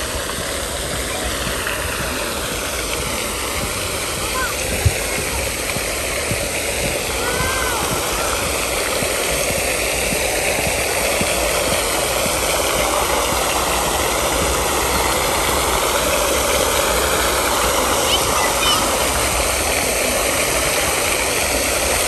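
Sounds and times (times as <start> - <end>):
fountain water splashing: 0.0 - 22.0.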